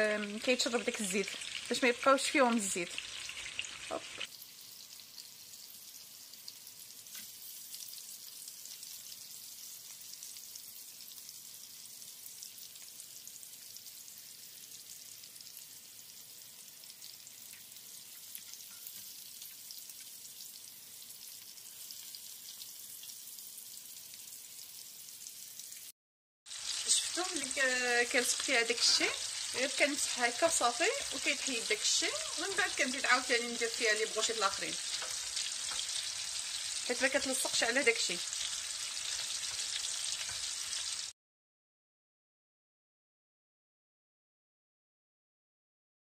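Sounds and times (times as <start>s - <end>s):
food frying in oil: 0.0s - 41.2s.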